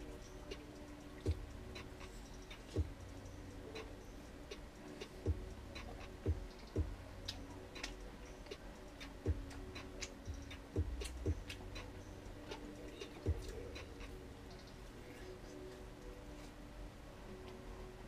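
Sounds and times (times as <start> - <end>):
soft low thumps: 1.3 - 1.8, 2.8 - 3.1, 5.3 - 7.1, 9.3 - 9.6, 10.3 - 11.6.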